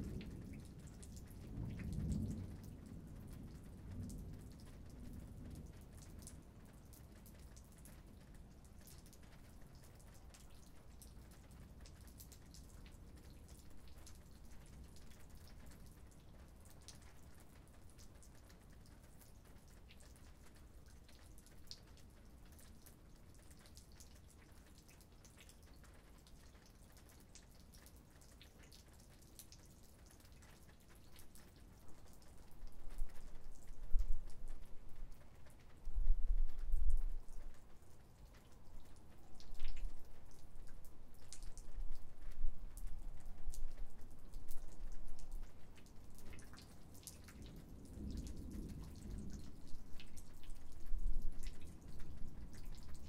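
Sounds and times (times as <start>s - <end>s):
light raindrop ticks: 0.0s - 53.0s.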